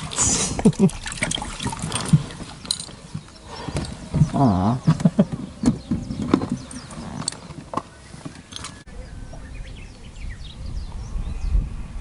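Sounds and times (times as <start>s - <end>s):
bird chirps: 3.1s - 11.6s
wind rumble: 8.8s - 12.0s.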